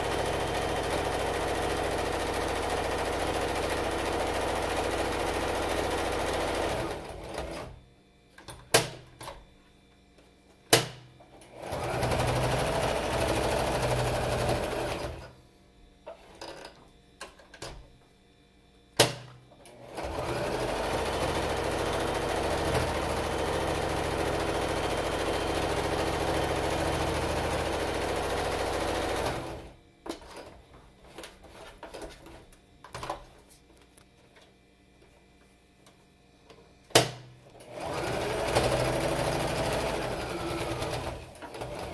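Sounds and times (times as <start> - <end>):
sewing machine stitching: 0.0 - 7.8, 11.5 - 15.3, 19.7 - 29.7, 37.6 - 41.9.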